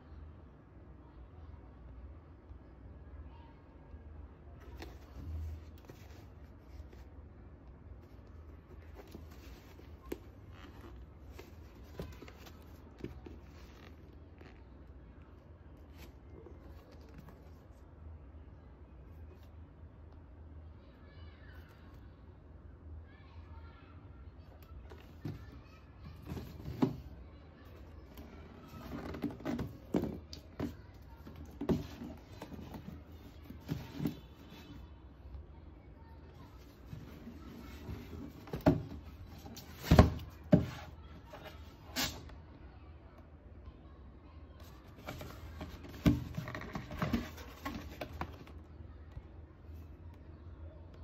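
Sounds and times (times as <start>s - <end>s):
shoebox handling knocks and rustles: 26.2s - 27.1s, 28.1s - 34.5s, 36.9s - 41.0s, 44.9s - 48.5s.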